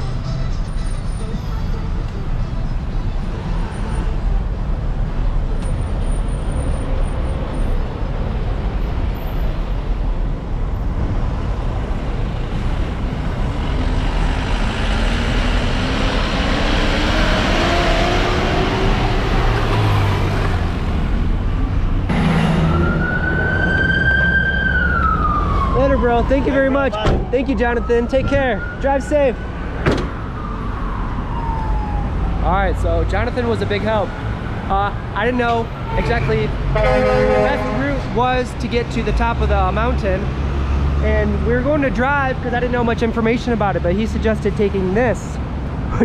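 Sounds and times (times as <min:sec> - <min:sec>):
car engine and tyre rumble: 0:00.0 - 0:46.0
high wailing siren: 0:22.5 - 0:32.5.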